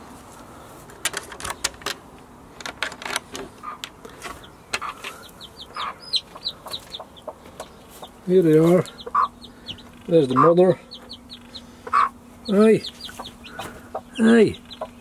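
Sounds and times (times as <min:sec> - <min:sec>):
hen clucking: 0:03.5 - 0:15.0
chick peeping: 0:03.6 - 0:15.0.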